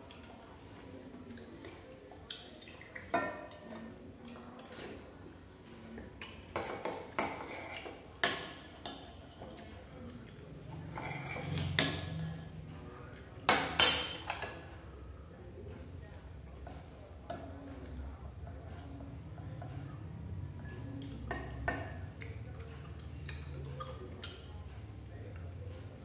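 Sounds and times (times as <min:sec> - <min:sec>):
metal spoon clinking on pot and bowls: 0:06.5 - 0:09.9, 0:10.7 - 0:12.6, 0:13.5 - 0:14.7.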